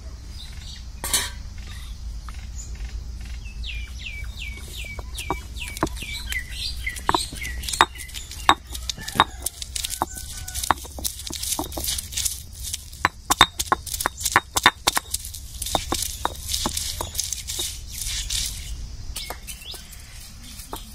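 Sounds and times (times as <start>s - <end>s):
grinding stone crushing knocks: 4.3s - 20.9s.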